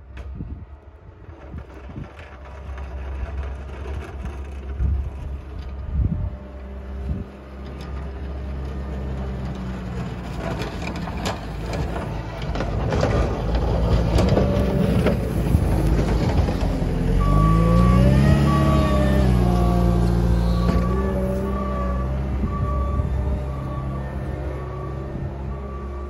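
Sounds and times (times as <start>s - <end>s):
diesel engine running under load: 0.0s - 26.0s
plow scraping snow: 0.7s - 26.0s
short reversing beeps: 17.2s - 19.7s.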